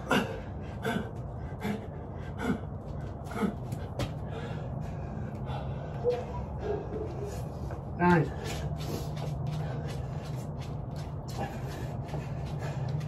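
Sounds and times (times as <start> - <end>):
man gasping: 0.0 - 6.0
man breathing hard: 0.0 - 13.0
steady low hum: 0.0 - 13.0.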